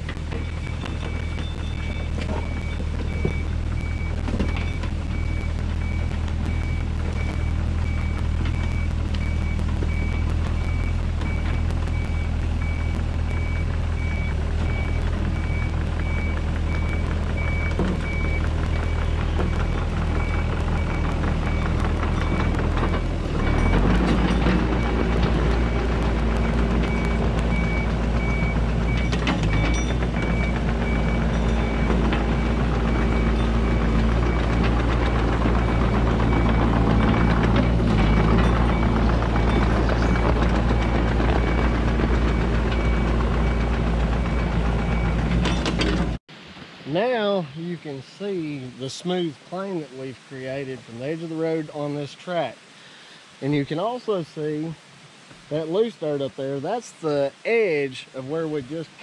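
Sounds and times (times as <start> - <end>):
diesel engine running: 0.0 - 46.2
travel alarm beeping: 0.1 - 45.6.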